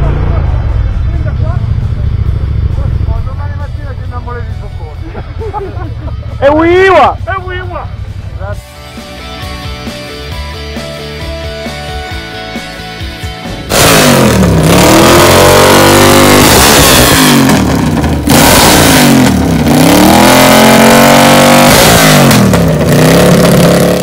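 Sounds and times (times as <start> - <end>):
motorcycle engine revving: 0.0 - 8.6, 13.6 - 24.0.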